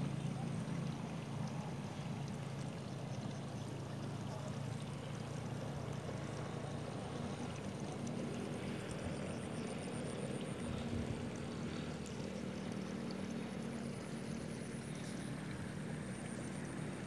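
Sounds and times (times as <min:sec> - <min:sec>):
distant motor drone: 0:00.0 - 0:17.0.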